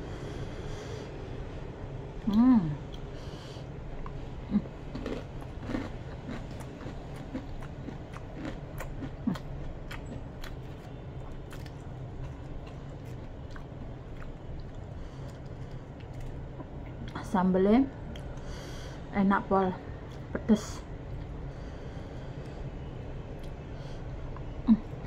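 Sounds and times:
chewing crunchy food: 4.8s - 17.2s, 21.0s - 21.4s.

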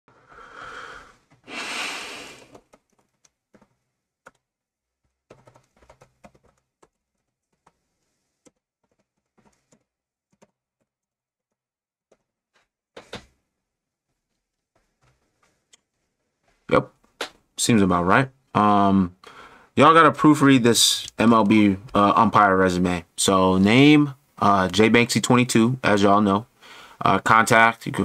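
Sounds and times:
keyboard typing: 2.4s - 12.4s.

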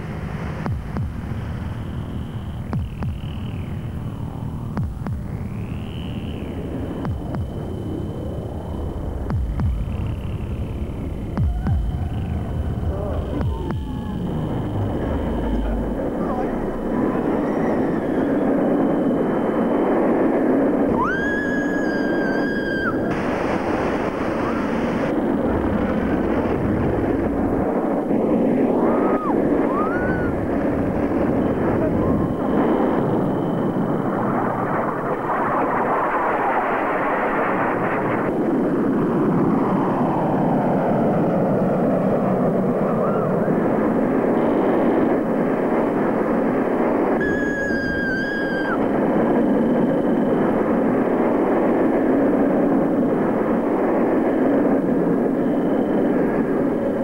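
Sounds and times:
roller coaster running on track: 6.8s - 57.0s
rider screaming: 20.9s - 23.1s, 28.8s - 30.4s.

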